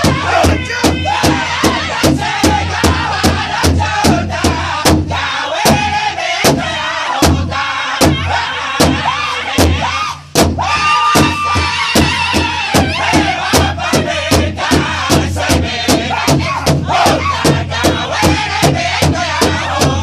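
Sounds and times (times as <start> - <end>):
large drum beating: 0.0 - 20.0
men singing in unison: 0.0 - 20.0.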